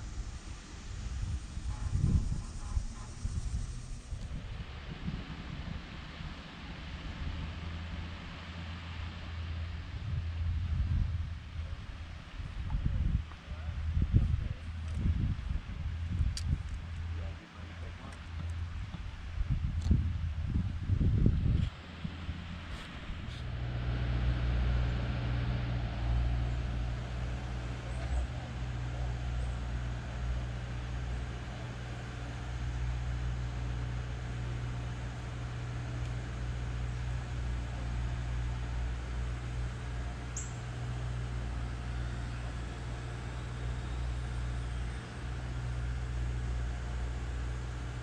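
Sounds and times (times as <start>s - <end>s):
even hiss: 0.0s - 4.8s
outdoor hiss: 0.0s - 9.7s
low rumble: 0.0s - 48.0s
vehicle engine humming: 0.0s - 48.0s.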